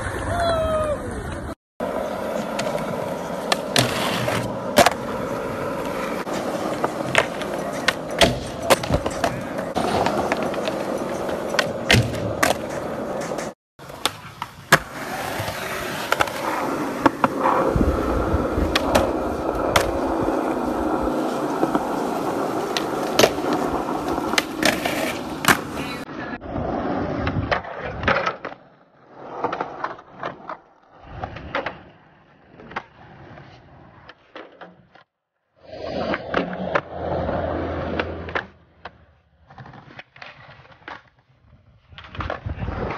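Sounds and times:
skateboard wheels rolling on concrete: 0.0 - 42.9
skateboard clacks: 1.2 - 17.6, 18.6 - 26.1
skateboard sliding on bench: 1.4 - 31.9.

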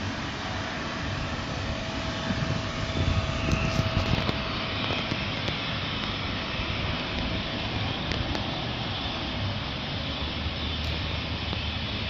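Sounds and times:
gusty low noise: 0.0 - 9.6
faint engine whine: 0.0 - 12.0
jet engines rushing: 0.0 - 12.0.

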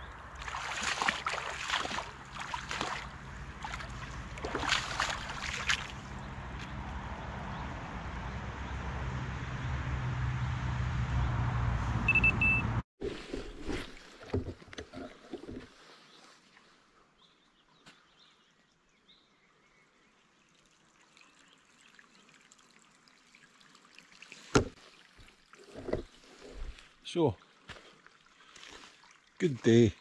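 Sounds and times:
water lapping at shore: 0.0 - 6.8, 20.0 - 30.0.

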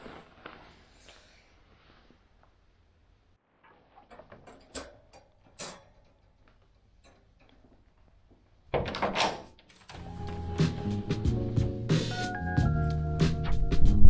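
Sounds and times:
wire crate clicking and rattling: 4.0 - 7.9.

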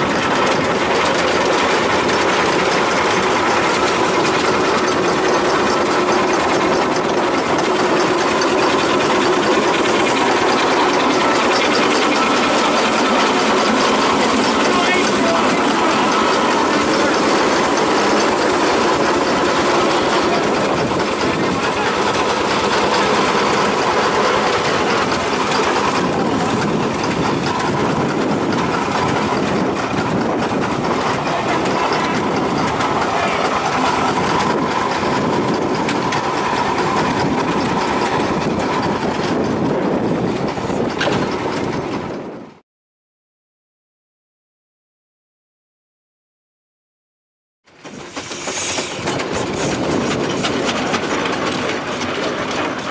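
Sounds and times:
steam traction engine running: 0.0 - 42.6, 47.7 - 52.9.

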